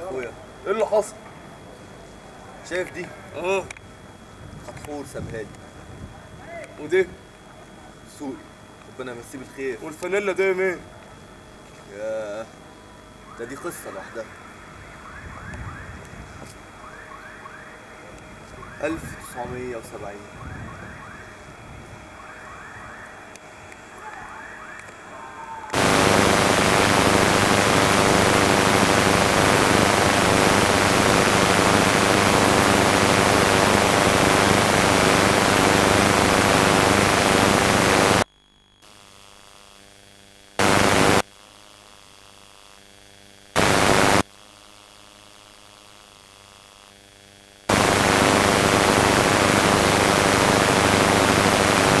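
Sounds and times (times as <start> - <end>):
static hiss: 25.7 - 52.0
low hum: 25.8 - 39.4.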